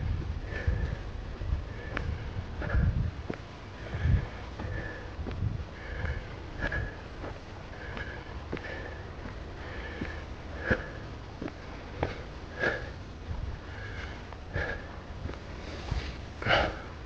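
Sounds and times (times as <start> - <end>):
footsteps on dirt trail: 0.0 - 16.7
heavy nasal breathing: 0.0 - 17.0.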